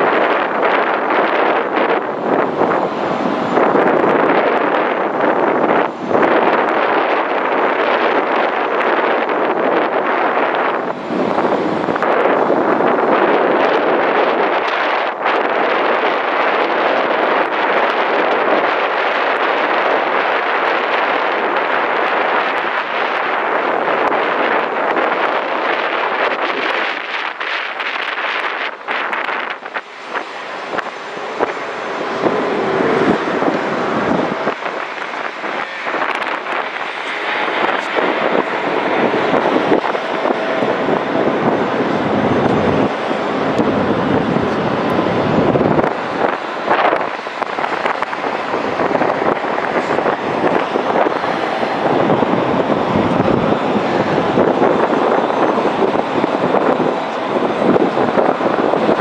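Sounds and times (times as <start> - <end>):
jet engines in flight: 0.0 - 59.0.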